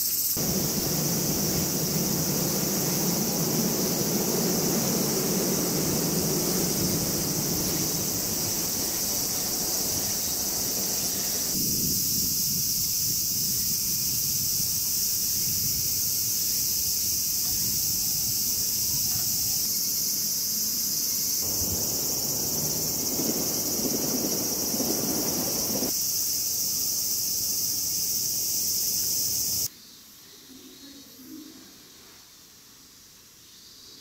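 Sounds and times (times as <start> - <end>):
cicadas droning: 0.0 - 34.0
low rumble: 0.4 - 11.5, 21.4 - 25.9.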